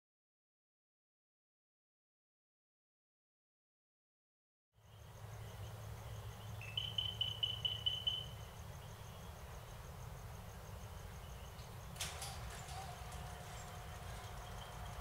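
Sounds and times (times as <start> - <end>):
low steady hum: 4.8 - 15.0
night insects and frogs calling: 4.8 - 15.0.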